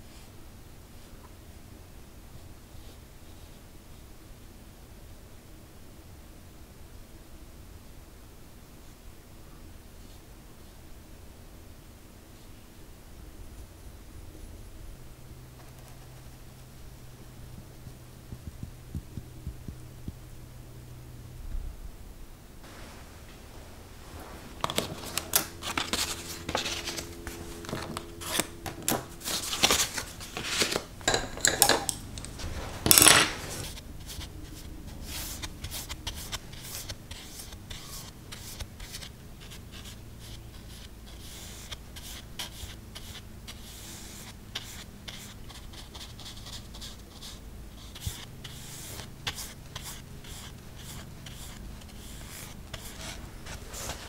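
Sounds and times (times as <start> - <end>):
paintbrush strokes on paper: 15.5 - 20.2, 22.6 - 30.8, 32.0 - 54.0
glass jars clinking and rattling: 31.0 - 33.6.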